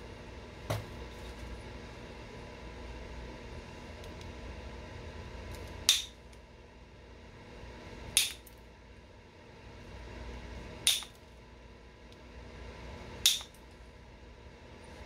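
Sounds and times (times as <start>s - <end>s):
stone knapping snaps: 5.8s - 6.2s, 8.2s - 8.5s, 10.8s - 11.2s, 13.2s - 13.6s.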